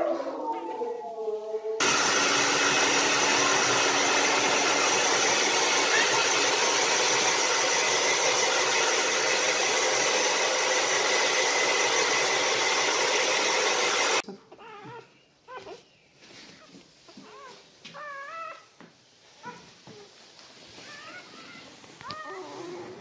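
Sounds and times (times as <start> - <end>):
hair dryer blowing: 1.8 - 14.2.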